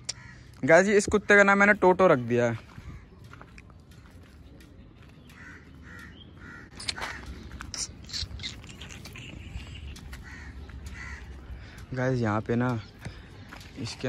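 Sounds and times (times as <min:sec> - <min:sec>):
crows cawing: 0:00.0 - 0:01.8, 0:02.5 - 0:03.6, 0:05.0 - 0:12.1.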